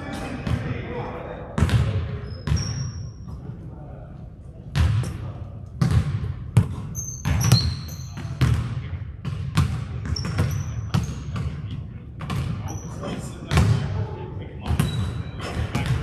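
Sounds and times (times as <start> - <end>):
basketball bouncing on hardwood floor: 1.6 - 2.7, 5.8 - 11.5
sneakers squeaking on court: 1.6 - 3.5, 5.8 - 11.6, 12.2 - 13.8, 14.6 - 16.0.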